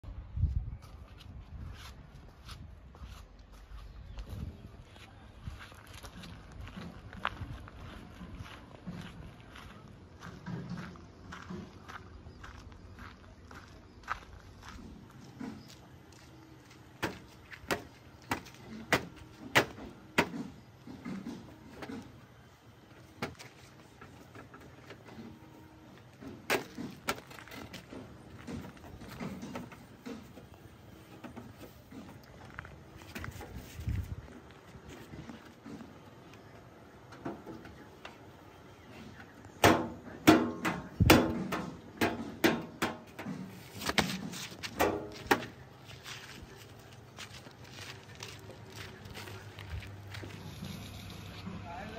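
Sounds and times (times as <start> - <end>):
footsteps in flip-flops: 0.5 - 19.3, 43.4 - 51.5.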